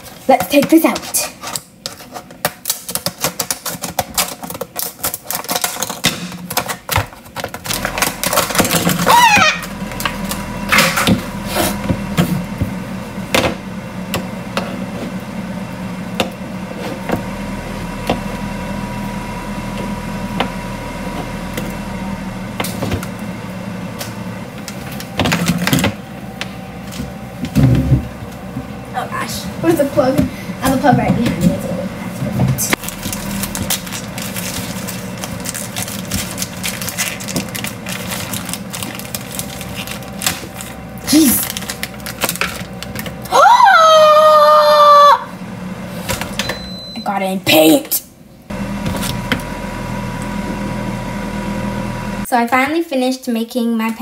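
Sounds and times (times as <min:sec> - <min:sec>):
steady hum: 0:00.0 - 0:52.8
scissors cutting plastic packaging: 0:00.9 - 0:09.2, 0:32.7 - 0:43.2.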